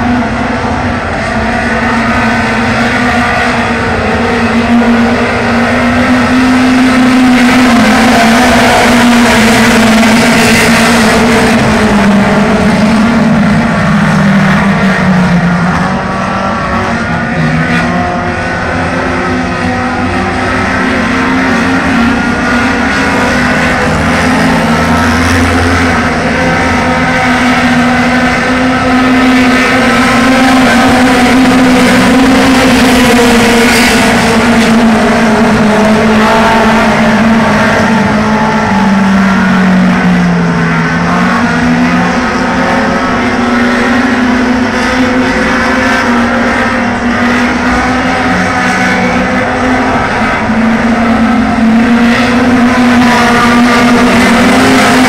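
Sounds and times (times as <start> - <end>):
race car engines droning: 0.0 - 55.0.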